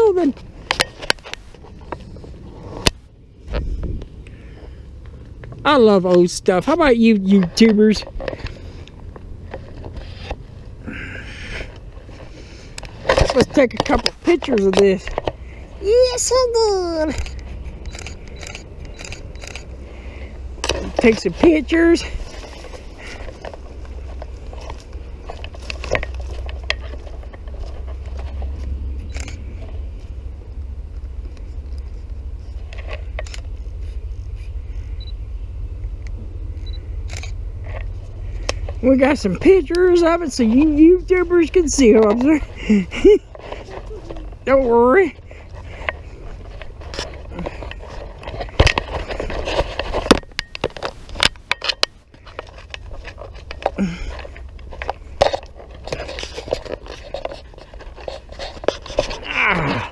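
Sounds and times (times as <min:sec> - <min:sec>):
camera handling rubbing and knocks: 0:00.0 - 0:04.2, 0:07.2 - 0:10.7, 0:11.7 - 0:19.8, 0:20.5 - 0:30.2, 0:31.0 - 0:34.9, 0:37.1 - 0:59.3
low rumble: 0:01.3 - 0:15.8, 0:16.4 - 0:51.2
footsteps on dirt trail: 0:17.2 - 0:34.5, 0:37.6 - 0:59.9.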